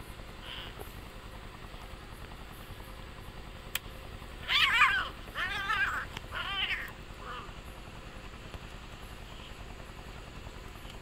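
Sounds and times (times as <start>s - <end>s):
cat yowling: 4.4s - 7.5s.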